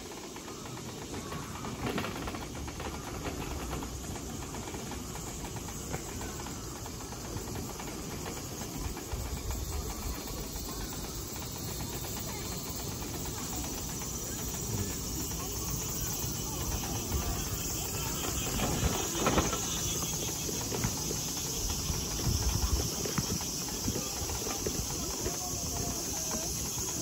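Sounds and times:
wheelchair rolling on pavement: 0.0 - 27.0.

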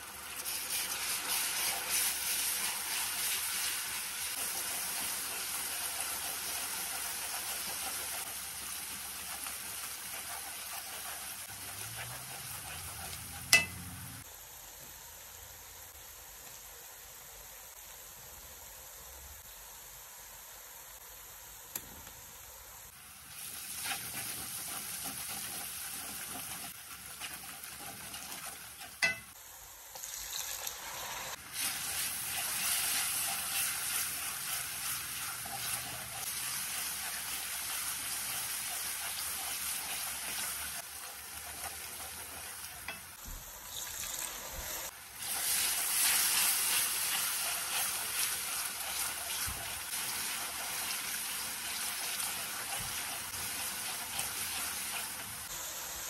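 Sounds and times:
food sizzling in hot oil: 0.0 - 14.4, 22.8 - 56.0
wooden spatula stirring: 4.4 - 14.2, 23.7 - 29.3, 31.8 - 43.1, 45.3 - 55.4.

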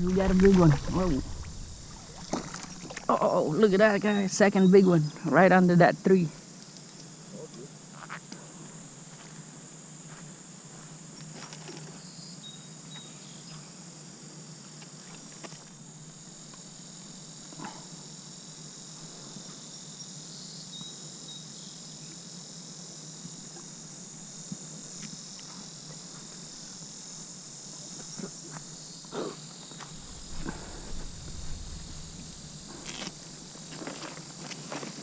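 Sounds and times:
short low rumble: 0.0 - 3.1, 29.8 - 33.9
insects buzzing: 0.0 - 35.0.

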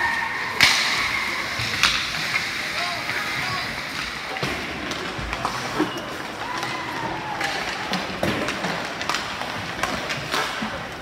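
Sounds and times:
hockey sticks striking pucks: 0.0 - 11.0
pucks hitting boards and glass: 0.0 - 11.0
rink background noise: 0.0 - 11.0.

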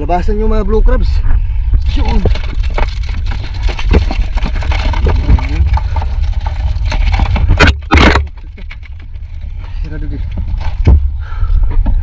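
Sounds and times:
steady low rumble: 0.0 - 12.0
crabs clicking and scraping in plastic tub: 1.8 - 11.2.

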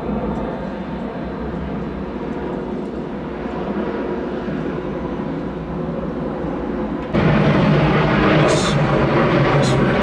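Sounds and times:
jet engines roaring: 0.0 - 10.0.

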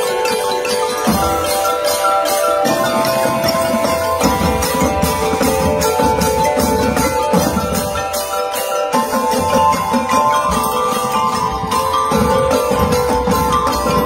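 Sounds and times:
marimbas and xylophones: 0.0 - 14.0.

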